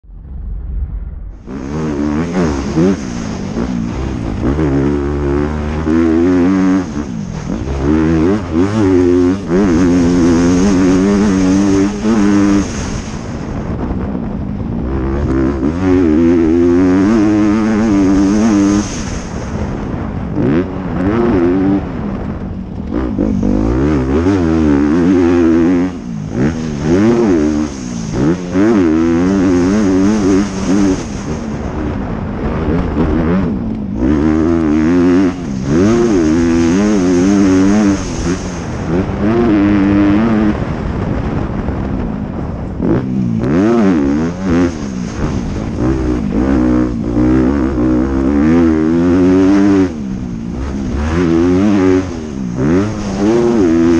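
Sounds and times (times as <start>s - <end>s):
motorcycle engine revving: 0.0s - 53.9s.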